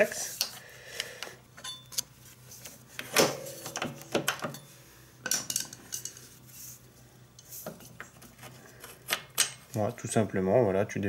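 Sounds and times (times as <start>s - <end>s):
screwdriver clinking on metal: 1.6s - 2.0s.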